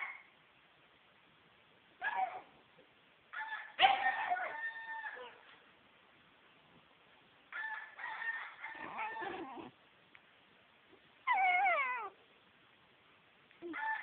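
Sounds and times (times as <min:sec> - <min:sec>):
small dog howling: 0:08.7 - 0:09.7, 0:11.3 - 0:12.2.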